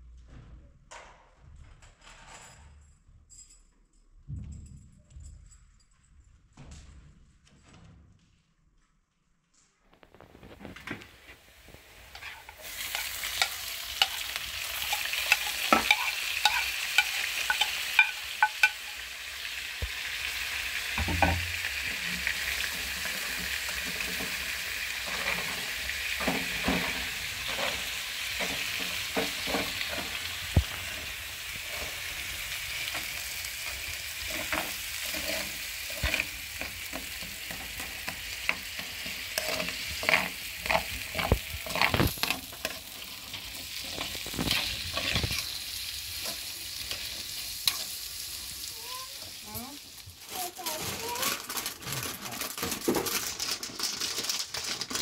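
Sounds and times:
potatoes sizzling in oil: 0:10.2 - 0:55.0
spoon scraping a pan: 0:11.2 - 0:19.4, 0:21.0 - 0:48.3.

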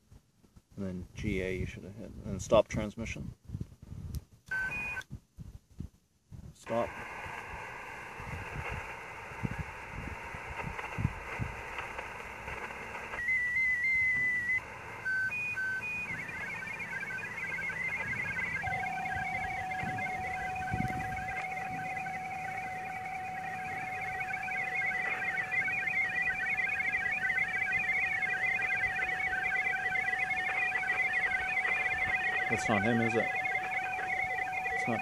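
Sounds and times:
short beeps: 0:04.5 - 0:05.1, 0:13.2 - 0:35.0
radio hiss: 0:06.6 - 0:35.0
steady radio tone: 0:06.6 - 0:35.0
warbling digital radio signals: 0:06.6 - 0:35.0.

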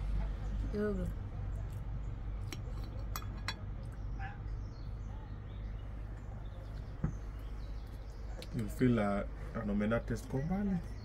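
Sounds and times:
cutlery clinking on plate: 0:02.5 - 0:03.7.

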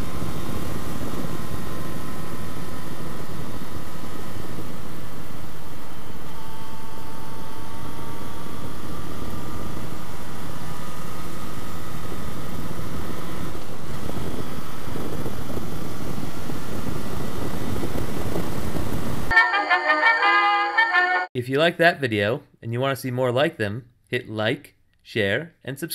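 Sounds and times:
motorcycle engine whine: 0:00.0 - 0:19.4
wind rushing over microphone: 0:11.9 - 0:19.3.

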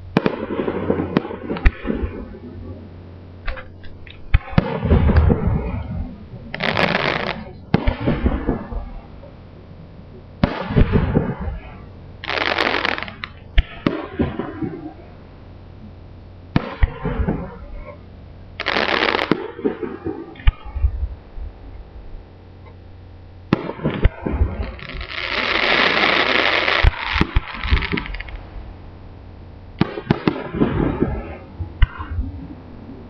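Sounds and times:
firework shells bursting: 0:06.5 - 0:08.8, 0:12.2 - 0:14.9, 0:18.6 - 0:20.6, 0:23.5 - 0:28.5
loud firework hissing: 0:06.6 - 0:08.7, 0:10.4 - 0:13.4, 0:18.6 - 0:19.7, 0:24.1 - 0:28.4.

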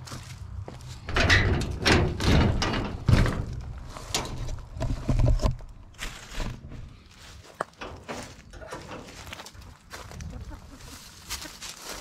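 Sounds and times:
metal mesh gate rattling: 0:01.1 - 0:04.6.

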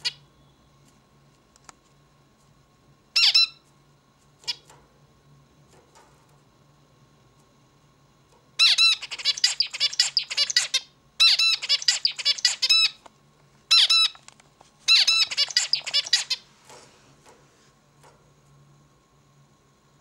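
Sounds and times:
finch singing: 0:08.6 - 0:13.0, 0:14.9 - 0:16.4.

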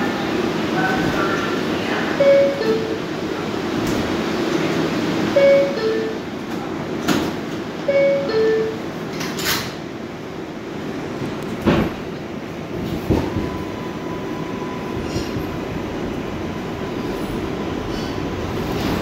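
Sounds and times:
subway car rumbling: 0:00.0 - 0:19.0
steady high tone: 0:05.4 - 0:06.3, 0:07.8 - 0:08.9.

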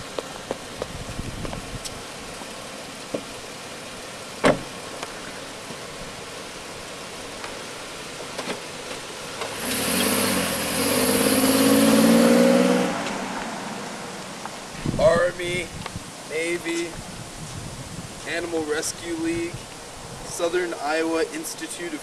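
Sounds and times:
car door shutting: 0:04.4 - 0:05.4, 0:08.3 - 0:09.6
car engine revving: 0:09.3 - 0:14.4.

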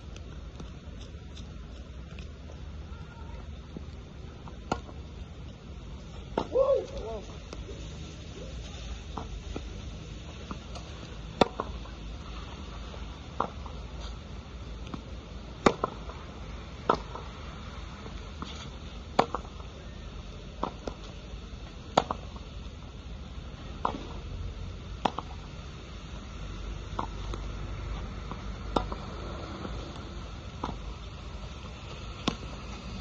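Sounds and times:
steady low rumble: 0:00.0 - 0:33.0
tennis ball hitting racket and wall: 0:04.4 - 0:05.0, 0:10.4 - 0:11.8, 0:14.9 - 0:16.1, 0:16.8 - 0:17.3, 0:18.4 - 0:19.6, 0:21.9 - 0:22.4, 0:25.0 - 0:25.5, 0:26.9 - 0:27.4, 0:28.2 - 0:31.0, 0:31.6 - 0:32.7.

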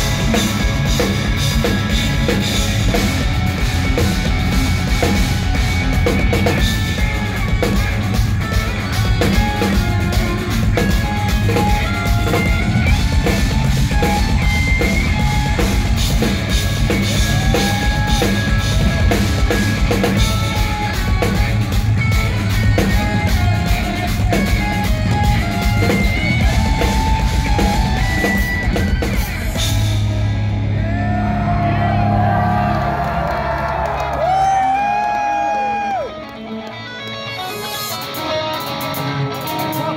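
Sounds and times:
fast drum kit playing: 0:00.0 - 0:30.5
electric guitars: 0:00.0 - 0:39.9.

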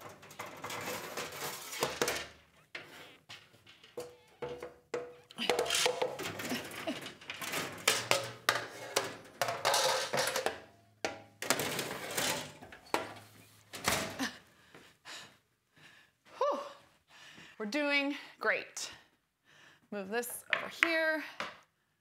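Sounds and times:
scraping and rustling: 0:00.0 - 0:04.0, 0:11.4 - 0:13.7
cabinet doors and pans clattering: 0:00.0 - 0:14.3.

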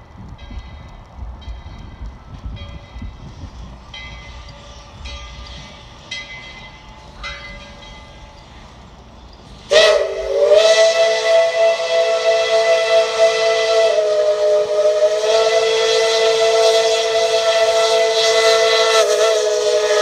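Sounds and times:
faint ringing strokes: 0:01.6 - 0:09.8
steam whistle blast: 0:09.7 - 0:20.0.

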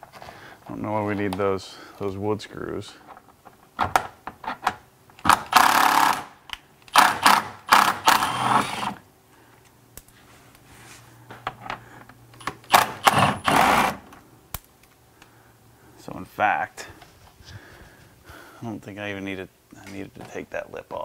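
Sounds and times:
cordless power driver bursts: 0:05.3 - 0:09.0, 0:12.6 - 0:14.1.

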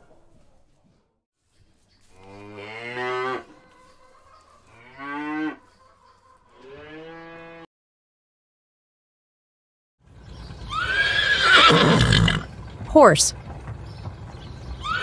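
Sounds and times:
cow mooing: 0:02.2 - 0:03.6, 0:04.7 - 0:05.6, 0:06.6 - 0:07.7.

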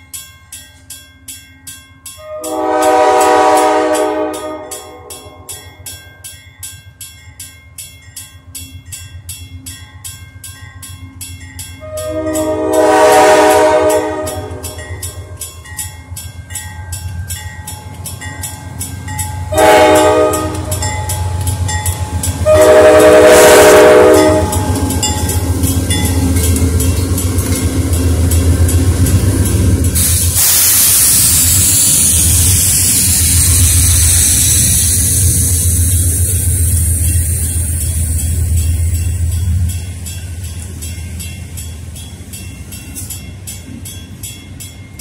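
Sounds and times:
crossing bell ringing: 0:00.0 - 0:45.0
train wheels on rails: 0:00.0 - 0:45.0
locomotive horn blasts: 0:02.2 - 0:05.5, 0:11.8 - 0:14.8, 0:19.5 - 0:20.8, 0:22.4 - 0:24.7.

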